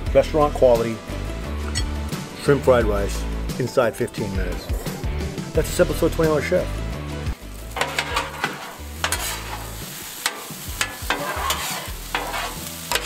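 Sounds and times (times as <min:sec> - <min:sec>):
frying sizzle: 0:05.8 - 0:13.0
metal scraper on griddle: 0:07.8 - 0:13.0.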